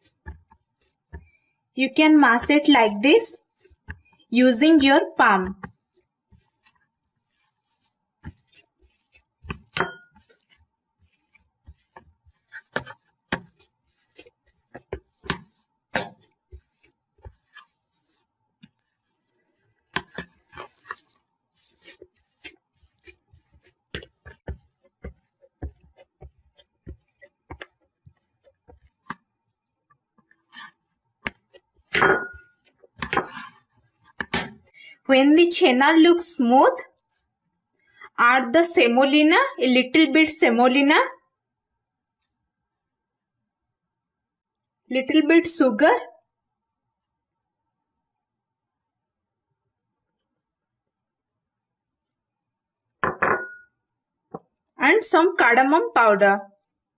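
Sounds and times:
palm kneading cheese on a plate: 0:00.0 - 0:34.8, 0:36.2 - 0:38.0, 0:46.2 - 0:54.8.

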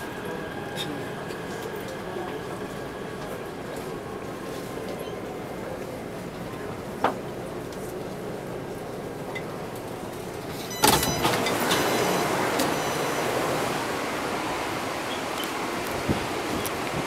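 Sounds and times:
standing train and platform noise: 0:00.0 - 0:17.0
train doors opening clunk: 0:10.5 - 0:13.6.

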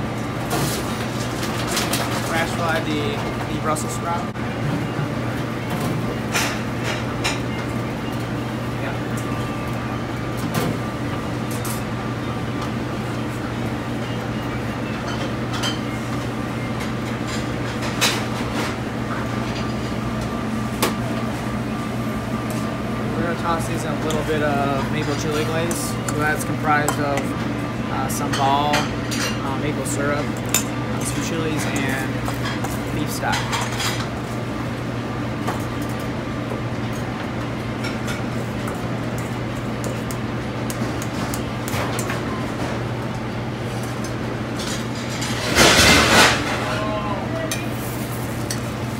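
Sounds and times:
kitchen ventilation drone: 0:00.0 - 0:48.9.

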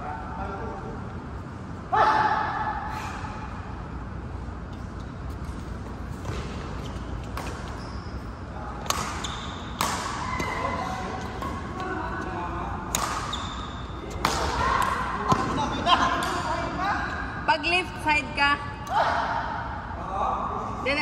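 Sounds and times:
rackets hitting shuttlecock: 0:05.4 - 0:07.8, 0:08.7 - 0:16.5
shoe squeak: 0:06.4 - 0:11.9, 0:13.2 - 0:14.2.

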